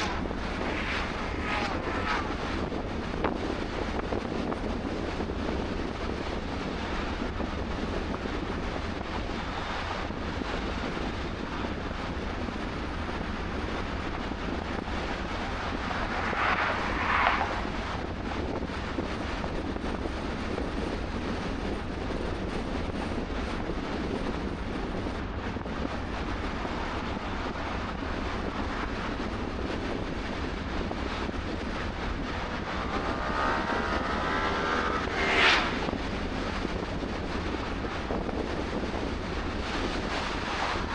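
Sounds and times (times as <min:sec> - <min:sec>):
vehicle engine passing: 0:00.0 - 0:02.8, 0:14.3 - 0:18.4, 0:30.1 - 0:37.8
vehicle passing: 0:00.0 - 0:02.8, 0:14.2 - 0:18.9, 0:30.1 - 0:37.8
car road and wind noise: 0:00.0 - 0:40.9.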